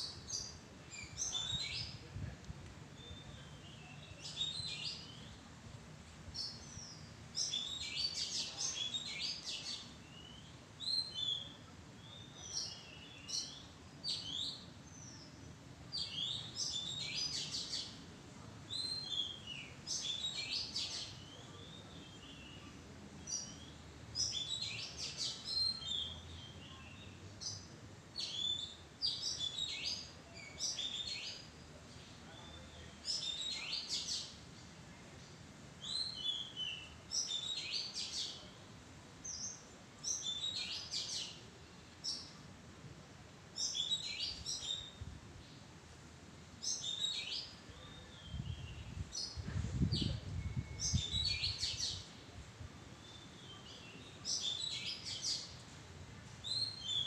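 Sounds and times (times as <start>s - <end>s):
bird singing whistled phrases: 50.0s - 52.0s.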